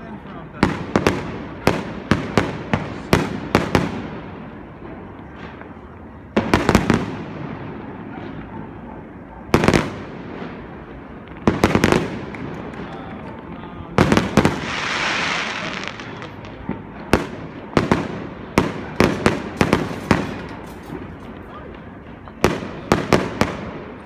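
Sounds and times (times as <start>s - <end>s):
fireworks bursting with bangs: 0.0s - 24.0s
fireworks hissing crackle: 9.8s - 24.0s.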